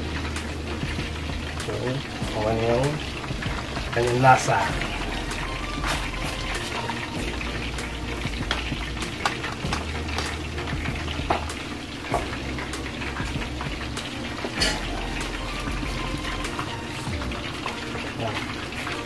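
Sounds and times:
chicken wings deep-frying in oil: 0.0 - 19.0.

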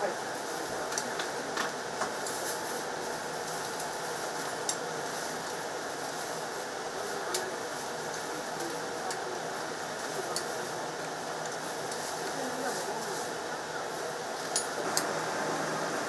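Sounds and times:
oven mechanical noise: 14.0 - 16.0.

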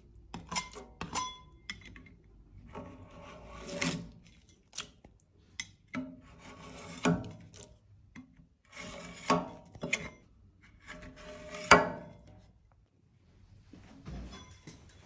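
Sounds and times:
metal blade scraping wax: 0.3 - 4.9, 5.5 - 7.8, 8.6 - 12.5.

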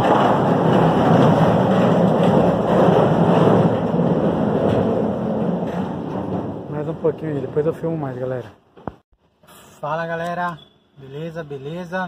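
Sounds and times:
pallet jack wheels rumbling: 0.0 - 7.7.

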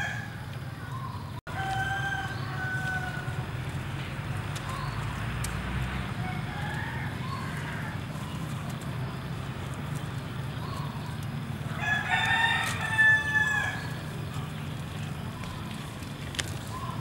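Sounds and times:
rooster crowing: 0.0 - 0.4, 1.5 - 3.5, 6.2 - 8.0, 11.7 - 14.0.

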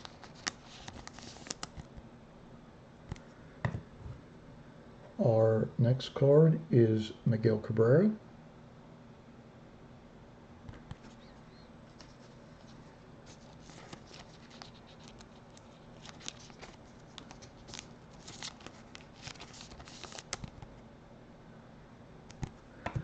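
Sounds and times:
fingers handling a card: 0.0 - 2.0, 10.7 - 20.7, 22.3 - 23.0.

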